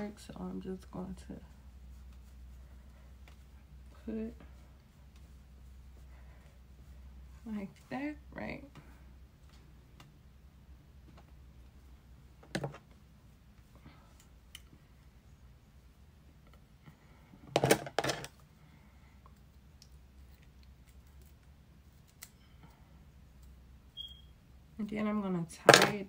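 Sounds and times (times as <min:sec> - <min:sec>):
steady low hum: 0:00.0 - 0:17.6.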